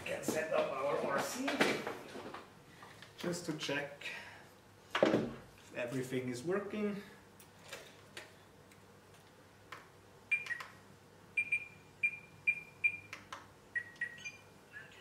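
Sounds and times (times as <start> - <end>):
short electronic beeps: 11.4 - 13.1.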